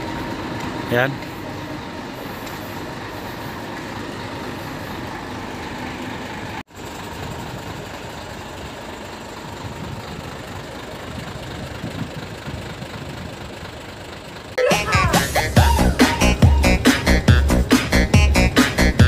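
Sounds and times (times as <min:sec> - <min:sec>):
diesel truck engine idling: 0:00.0 - 0:19.0.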